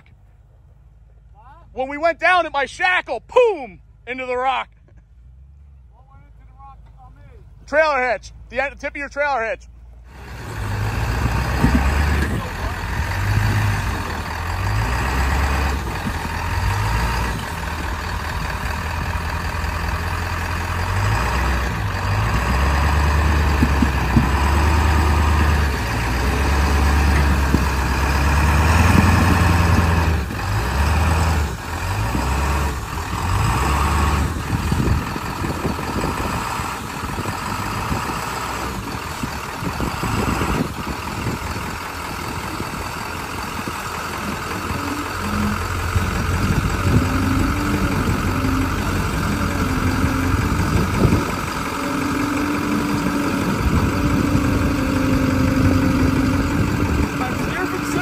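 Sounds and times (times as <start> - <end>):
off-road vehicle engine low rumble: 0.0 - 58.0
knocks and clunks from rough ground: 9.8 - 14.7, 21.4 - 30.1.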